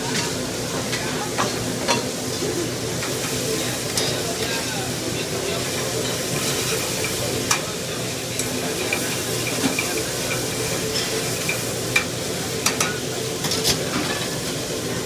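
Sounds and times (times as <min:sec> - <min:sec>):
vegetables sizzling in pan: 0:00.0 - 0:15.0
pan clanking on grate: 0:08.4 - 0:14.5.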